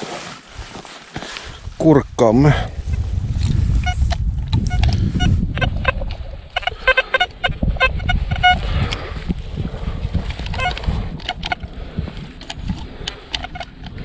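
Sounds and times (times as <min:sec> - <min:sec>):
low rumble: 0:01.5 - 0:13.0
metal detector beeps: 0:03.8 - 0:09.0, 0:10.5 - 0:11.7, 0:13.3 - 0:13.8.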